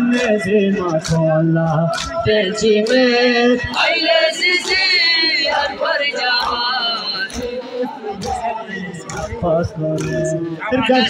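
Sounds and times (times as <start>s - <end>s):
men chanting a lament: 0.0s - 11.0s
hands slapping on chests: 0.9s - 7.6s, 10.0s - 10.3s.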